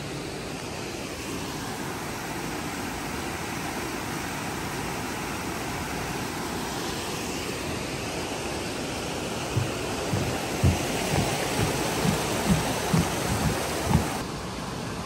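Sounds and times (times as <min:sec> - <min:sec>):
stream rushing over rocks: 0:00.0 - 0:15.0.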